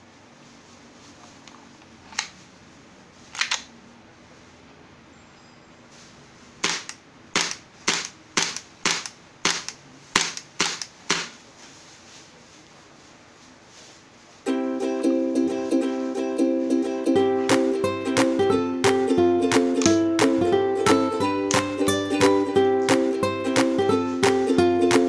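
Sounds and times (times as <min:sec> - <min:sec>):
suppressed airsoft pistol shots: 0:06.6 - 0:11.3.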